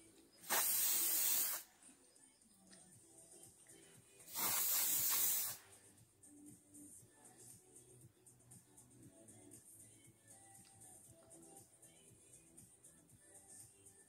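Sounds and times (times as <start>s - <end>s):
aerosol can spraying hiss: 0.4s - 1.7s, 4.2s - 5.8s.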